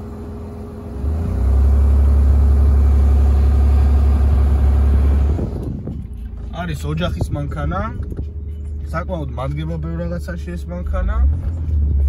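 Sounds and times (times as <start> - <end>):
car cabin rumble on rough ground: 5.2 - 12.0.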